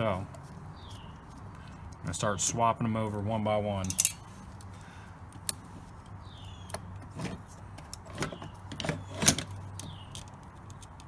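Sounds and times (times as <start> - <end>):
small metallic clicks and taps: 7.7 - 11.0.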